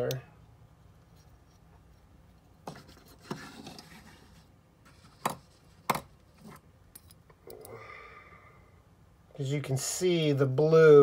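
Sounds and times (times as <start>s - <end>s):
metal toy rubbing and scraping: 2.7s - 5.7s.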